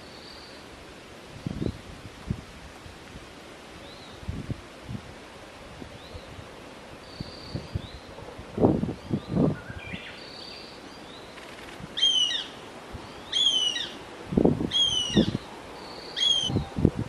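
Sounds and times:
young hawk whining calls: 12.0s - 12.6s, 13.2s - 14.0s, 14.7s - 16.7s.

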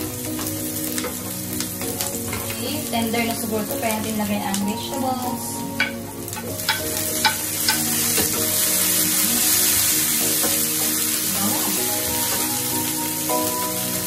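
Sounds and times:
vegetables sizzling in hot oil: 0.0s - 14.0s
spatula tapping the pan: 5.8s - 8.6s.

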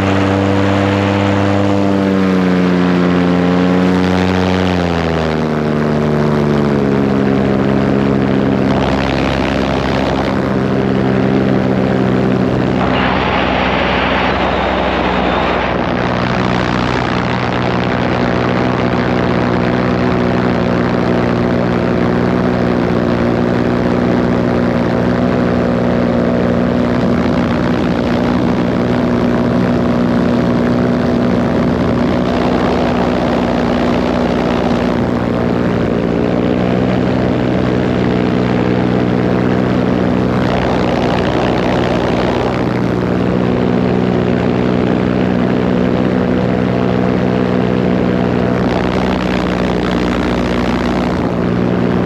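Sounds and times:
paramotor engine and propeller: 0.0s - 52.0s
rushing noise: 12.0s - 19.0s.

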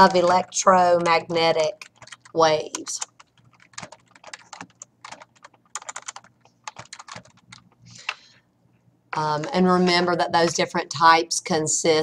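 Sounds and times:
computer keyboard typing: 0.0s - 8.3s.

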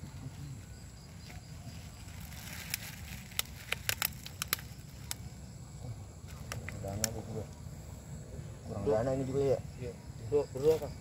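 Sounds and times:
plastic crinkling: 2.0s - 5.2s.

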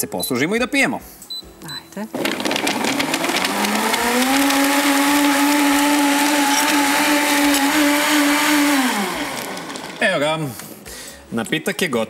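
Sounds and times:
blender motor whine: 2.2s - 10.2s.

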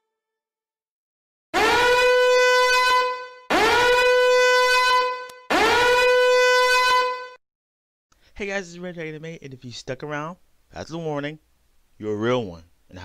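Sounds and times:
rising alarm horn blasts: 1.6s - 7.4s.

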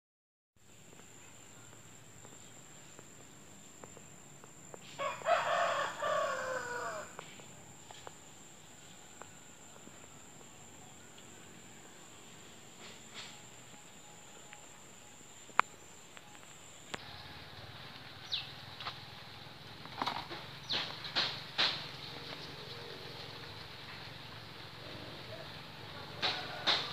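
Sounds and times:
high-pitched insect whine: 0.6s - 26.9s
rooster crowing: 4.9s - 7.5s, 25.2s - 26.9s.

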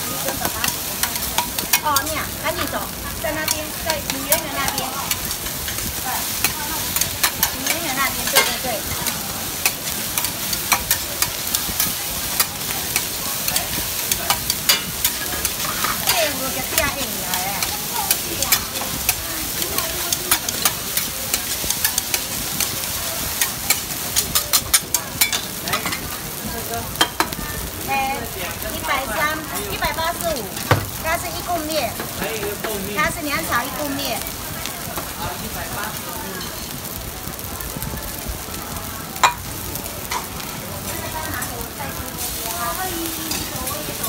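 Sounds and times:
rice sizzling on a griddle: 0.0s - 44.0s
metal spatula clacking on griddle: 0.2s - 26.2s.

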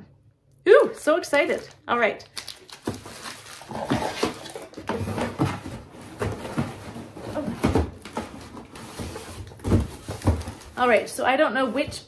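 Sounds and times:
cardboard box rustling: 2.7s - 11.0s.

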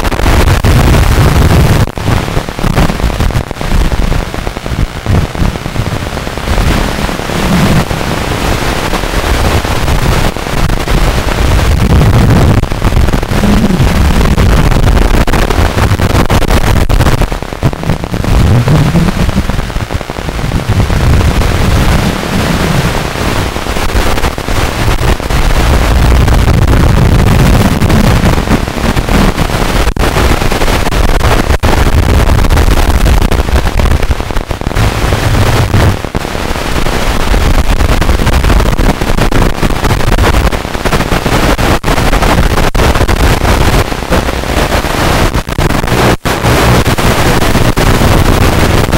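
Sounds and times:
harsh distorted noise: 0.0s - 48.9s
heavy low rumble: 0.5s - 31.0s, 31.6s - 36.8s.

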